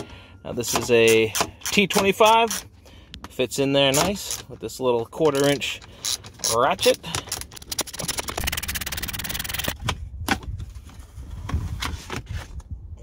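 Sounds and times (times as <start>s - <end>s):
ratchet clicking rapidly: 5.4s - 9.8s.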